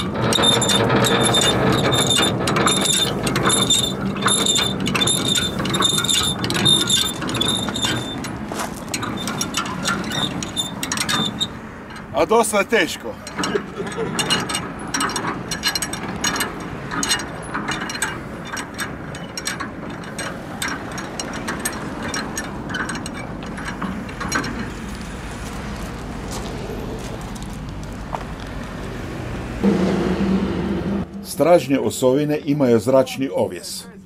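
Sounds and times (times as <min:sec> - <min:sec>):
ratchet clicking rapidly: 0:00.0 - 0:12.1.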